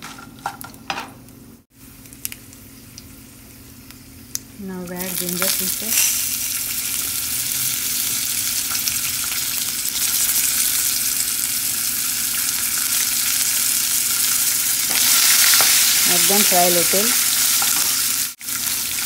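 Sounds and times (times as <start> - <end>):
food sizzling in hot oil: 1.8 - 19.0.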